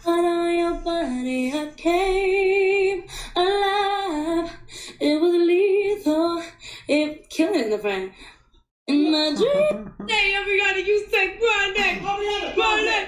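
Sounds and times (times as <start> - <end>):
woman singing: 0.0 - 8.1, 8.9 - 10.9.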